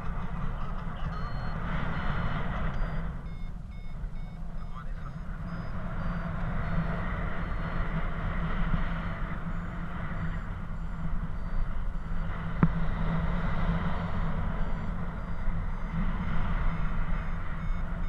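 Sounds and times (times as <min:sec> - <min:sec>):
variometer high beeps: 0:00.0 - 0:18.0
wind rushing over microphone: 0:05.2 - 0:18.0.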